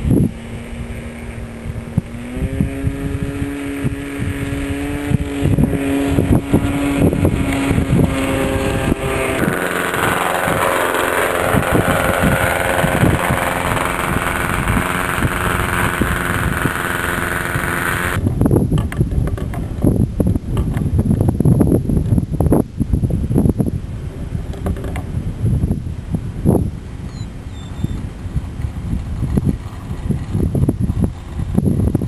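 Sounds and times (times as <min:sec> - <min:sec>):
wind buffeting microphone: 0:00.0 - 0:32.0
small model engine running: 0:01.6 - 0:18.2.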